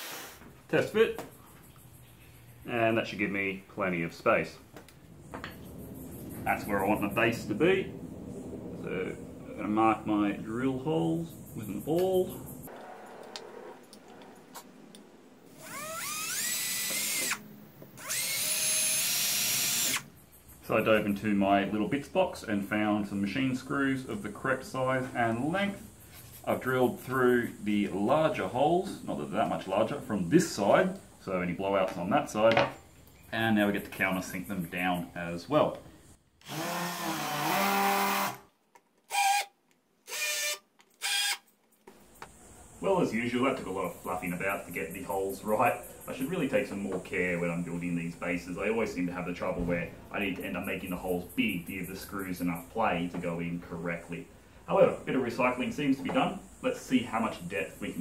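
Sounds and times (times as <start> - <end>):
cordless drill whining: 15.5 - 17.4, 18.0 - 20.0, 36.4 - 38.4, 39.1 - 41.4.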